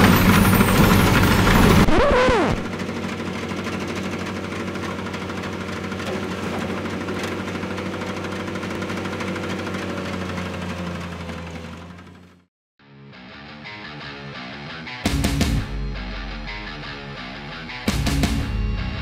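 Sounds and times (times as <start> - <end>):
tractor engine running: 0.0 - 12.5.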